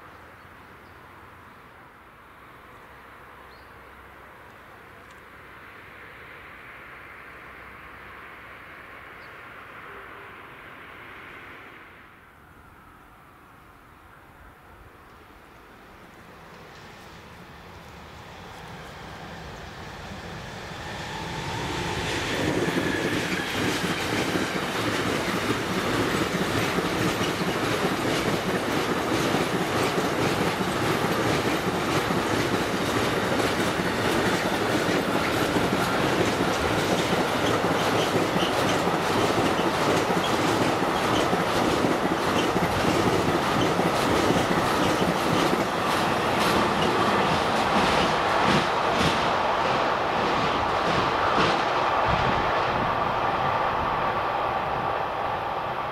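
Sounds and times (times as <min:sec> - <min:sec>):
freight train passing: 0:00.0 - 0:55.9
wheels clacking on rails: 0:20.8 - 0:52.4.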